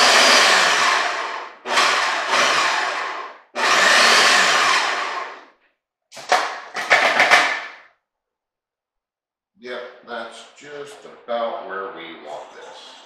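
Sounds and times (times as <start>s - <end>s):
food processor motor whirring: 0.0s - 5.5s.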